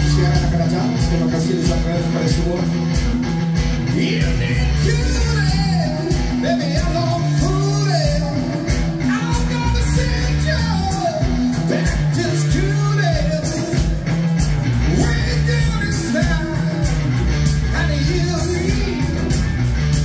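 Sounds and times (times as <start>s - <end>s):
bass guitar: 0.0s - 20.0s
drum kit beat: 0.0s - 20.0s
electric guitars: 0.0s - 20.0s
rock band playing: 0.0s - 20.0s
person singing lead vocal: 3.9s - 14.0s, 14.9s - 17.1s, 17.7s - 19.4s.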